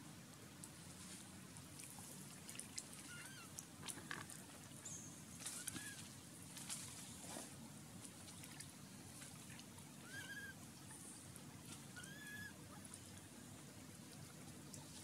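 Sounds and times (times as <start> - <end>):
faint water sounds: 0.0 - 15.0
infant monkey crying: 3.1 - 3.5, 10.0 - 10.6, 11.9 - 12.6.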